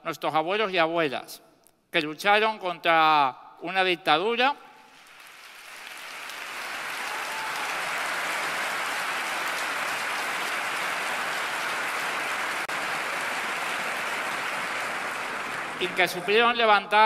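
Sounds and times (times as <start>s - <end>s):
large crowd applauding: 4.9s - 16.8s.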